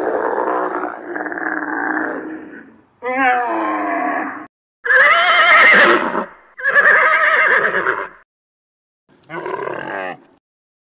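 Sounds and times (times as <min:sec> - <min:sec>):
animal wavering cries: 0:00.0 - 0:06.0.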